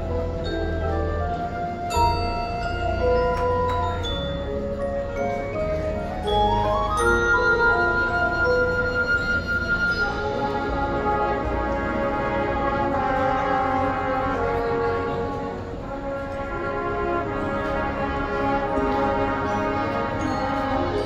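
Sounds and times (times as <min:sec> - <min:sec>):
marching band playing held chords: 0:00.0 - 0:21.0.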